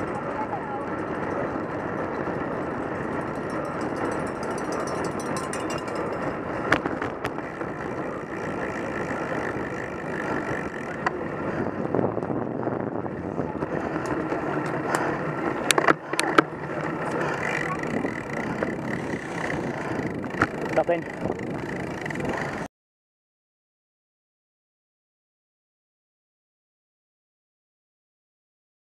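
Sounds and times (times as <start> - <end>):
bike tyre noise: 0.0 - 22.7
wind rush: 1.5 - 15.8, 17.0 - 22.7.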